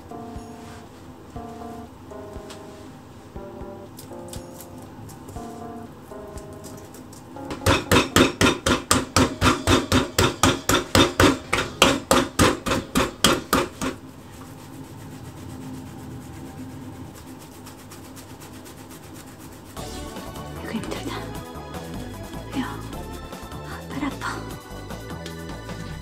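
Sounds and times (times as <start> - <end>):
fists punching dough in metal bowl: 7.5 - 14.0.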